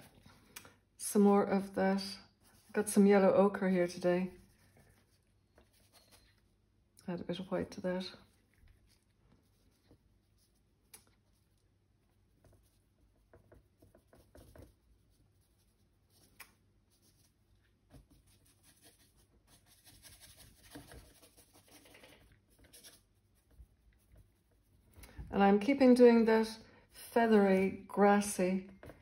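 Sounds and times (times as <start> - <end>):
paintbrush scratching on canvas: 1.1 - 6.6, 8.0 - 25.0.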